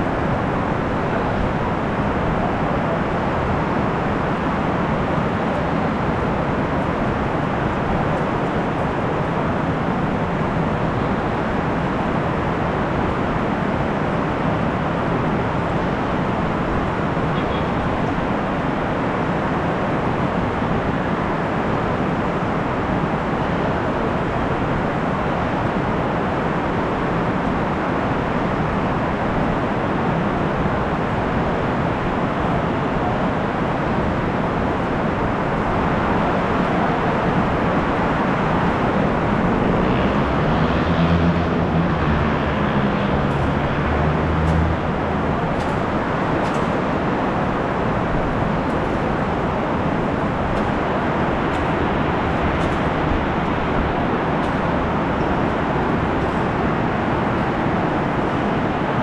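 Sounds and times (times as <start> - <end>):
heavy rain: 0.0 - 59.0
vehicle engine hum: 37.3 - 59.0.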